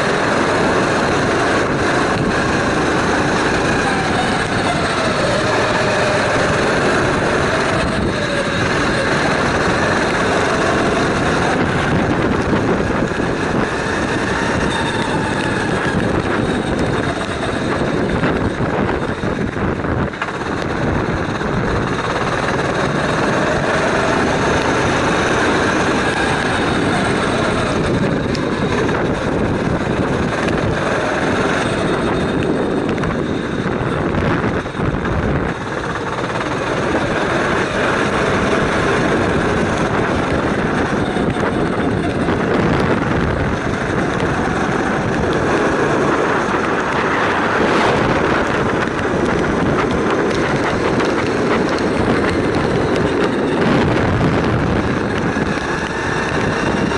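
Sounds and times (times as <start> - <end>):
kart engine buzzing: 0.0 - 56.9.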